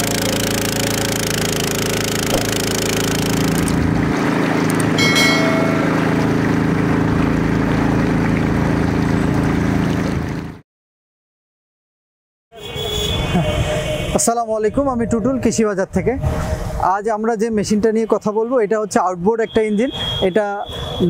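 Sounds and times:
boat engine running: 0.0s - 10.6s
water rushing and splashing: 0.0s - 10.6s
brief chime: 5.0s - 6.0s.

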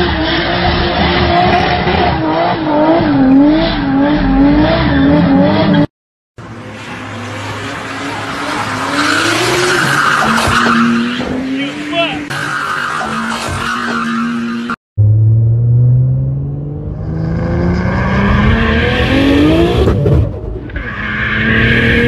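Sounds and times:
car engine revving hard: 0.0s - 5.9s, 15.5s - 20.1s
car engine rising in pitch: 15.0s - 22.0s.

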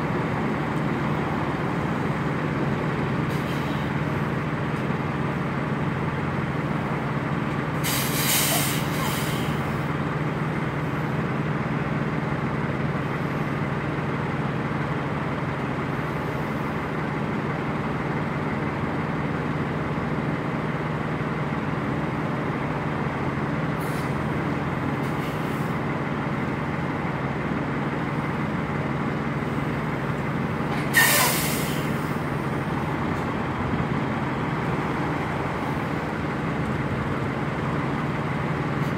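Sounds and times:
diesel truck engine running: 0.0s - 38.9s
air brake hiss: 7.8s - 9.6s, 23.8s - 24.2s, 30.9s - 32.2s.

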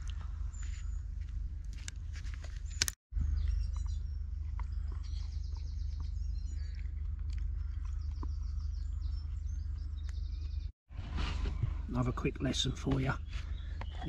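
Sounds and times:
birds singing: 2.6s - 10.7s, 11.9s - 14.0s.

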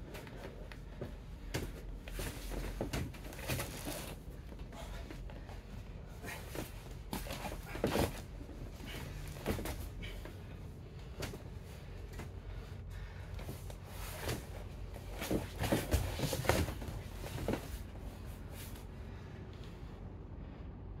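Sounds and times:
bodies scuffing on foam mats: 13.4s - 18.9s.

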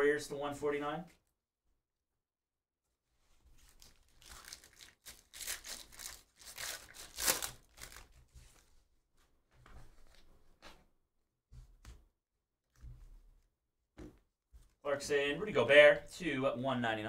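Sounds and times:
foil wrapper tearing and crinkling: 3.6s - 8.2s.

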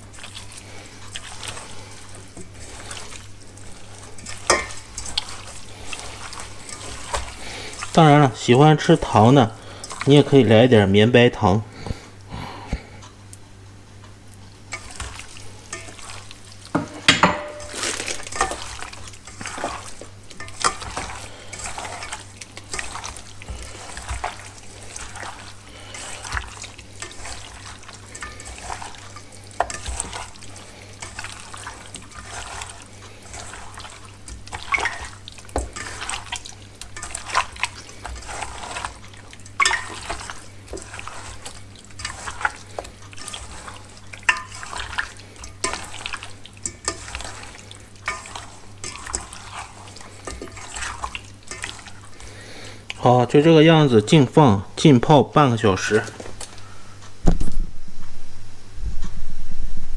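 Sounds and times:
squelching marinade: 0.0s - 13.2s, 14.0s - 56.8s.

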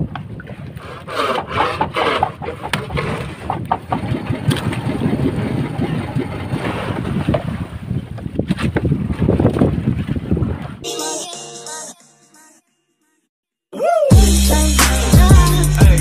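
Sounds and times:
fish splashing water: 0.6s - 7.8s
fish knocking against boat: 1.4s - 6.6s.

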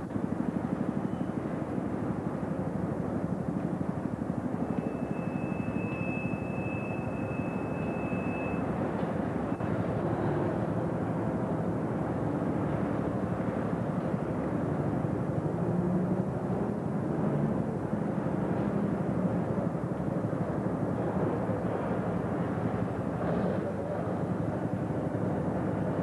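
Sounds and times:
thin high whistle: 4.6s - 8.8s.

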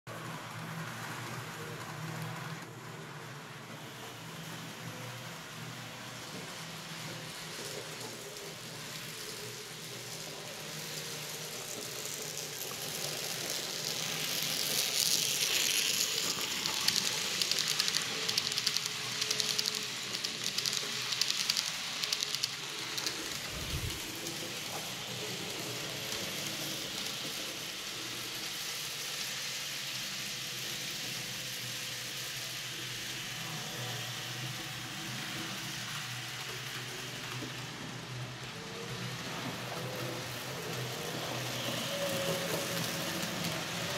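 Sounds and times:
model train wheels clicking on rails: 0.1s - 43.9s
motor whir: 14.0s - 24.3s.

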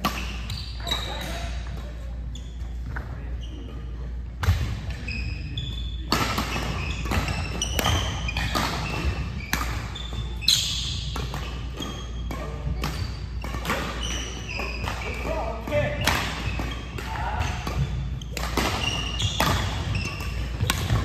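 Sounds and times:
sneakers squeaking on gym floor: 0.0s - 21.0s
rackets hitting shuttlecocks: 6.1s - 21.0s.

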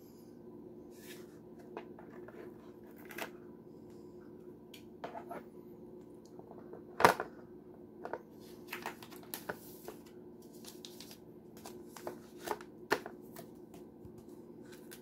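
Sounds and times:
plastic and paper rustling: 8.4s - 15.0s.

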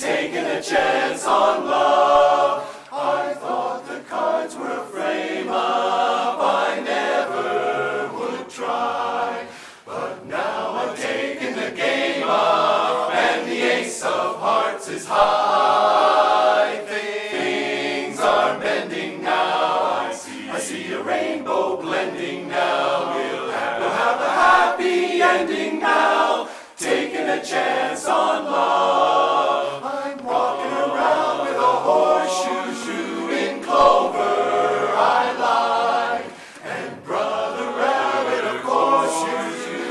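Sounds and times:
men's chorus singing a cappella: 0.0s - 39.9s.

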